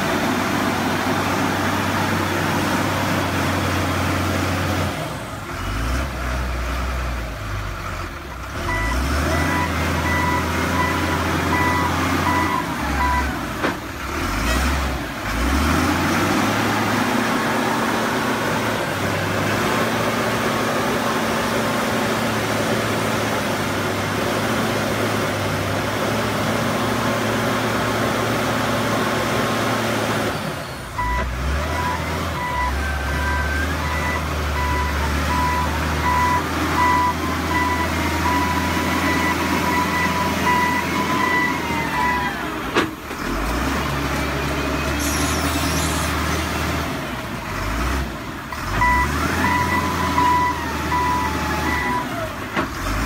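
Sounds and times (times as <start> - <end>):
diesel engine running: 0.0 - 53.0
reversing alarm beeping: 8.7 - 13.4, 31.0 - 42.5, 48.8 - 52.3.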